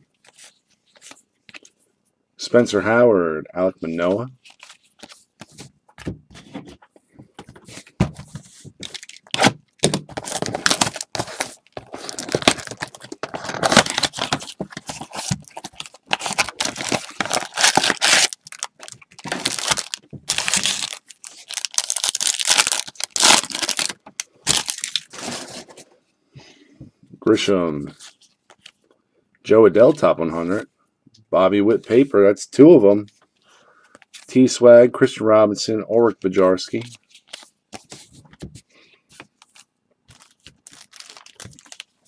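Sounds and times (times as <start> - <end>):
wrappers tearing and crinkling: 8.8 - 25.6, 39.4 - 42.0.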